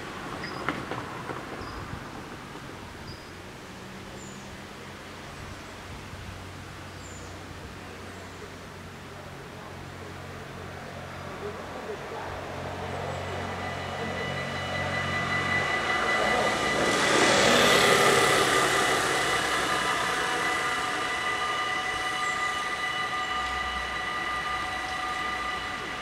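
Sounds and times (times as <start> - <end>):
motor scooter passing: 12.1 - 26.0
level crossing bells ringing: 12.5 - 26.0.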